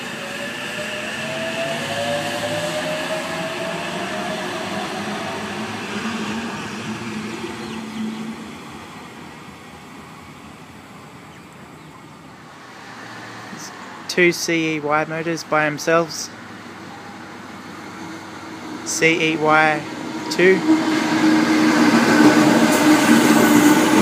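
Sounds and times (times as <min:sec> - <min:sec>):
train motor whine rising: 0:00.0 - 0:07.4
train cars rumbling: 0:00.0 - 0:11.2, 0:12.2 - 0:24.0.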